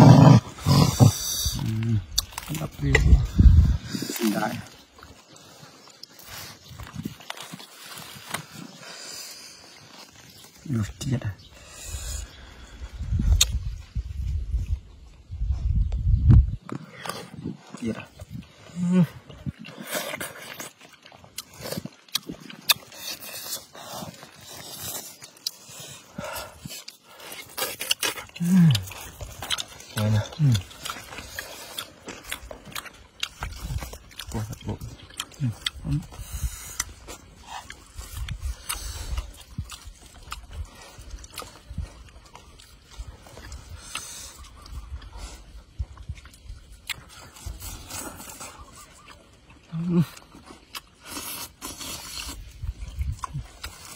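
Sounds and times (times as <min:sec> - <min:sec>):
chewing and lip smacking: 0:00.0 - 0:10.7, 0:12.1 - 0:13.9, 0:15.9 - 0:53.9
sharp mouth clicks: 0:13.2 - 0:13.8.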